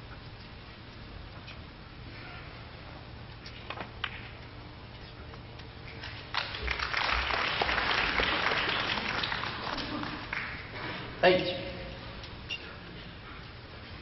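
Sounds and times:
audience applauding: 6.3 - 10.8.

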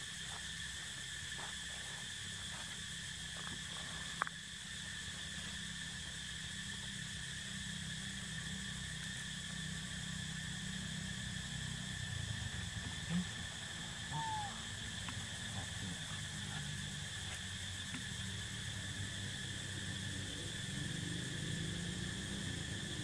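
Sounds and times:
forest insects droning: 0.0 - 23.0
faint ticks: 3.4 - 4.4, 17.2 - 18.1.

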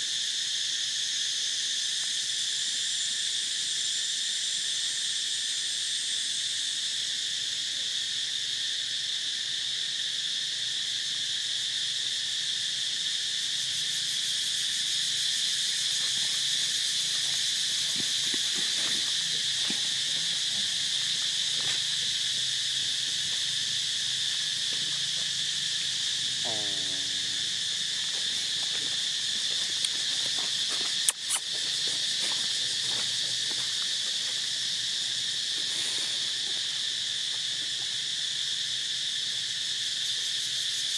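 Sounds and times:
high-pitched insect chorus: 0.0 - 40.9
sharp click: 31.1 - 31.5.

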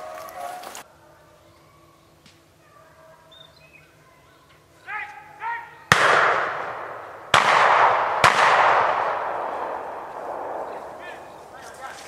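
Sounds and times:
echoing gunshots: 5.9 - 12.0.

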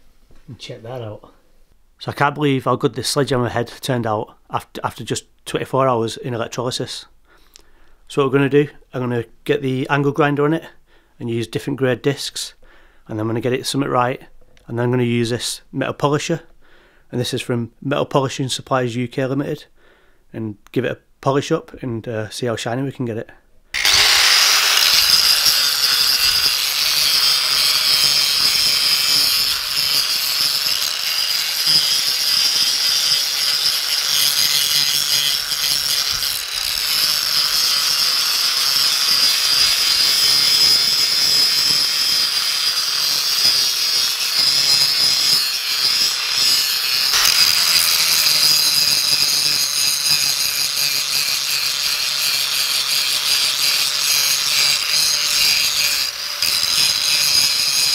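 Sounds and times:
angle grinder grinding steel: 23.8 - 57.9.

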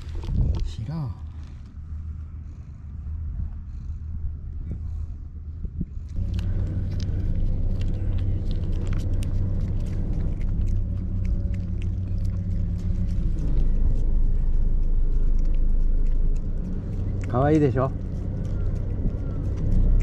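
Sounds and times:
low motor rumble: 0.0 - 20.0
cat licking: 6.1 - 20.0.

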